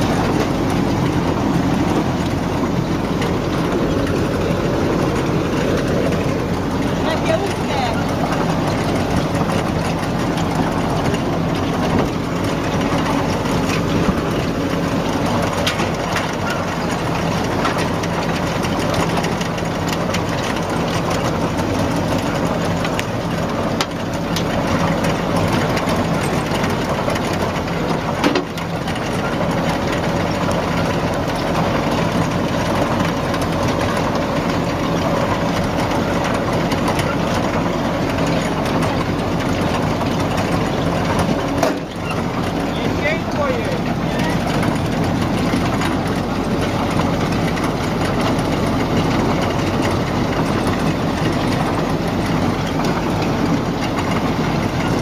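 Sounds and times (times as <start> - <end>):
heavy machine engine running: 0.0 - 55.0
sharp clicks and knocks: 0.0 - 55.0.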